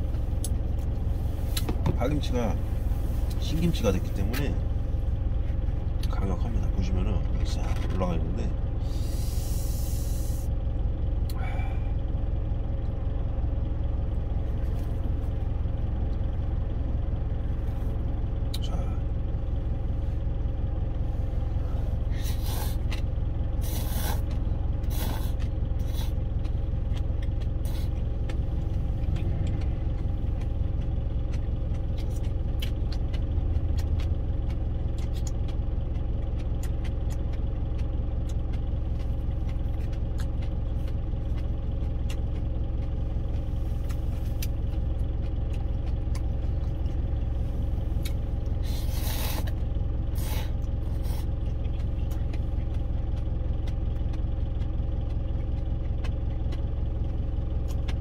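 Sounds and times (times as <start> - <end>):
truck engine idling: 0.0 - 58.0
noodle slurping and chewing: 23.6 - 26.2, 48.6 - 49.6.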